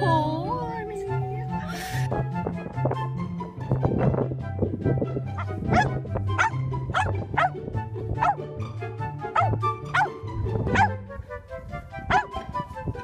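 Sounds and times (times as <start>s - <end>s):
background music with bass line: 0.0s - 13.0s
dog yipping: 5.4s - 7.5s, 9.4s - 10.9s, 12.1s - 12.4s.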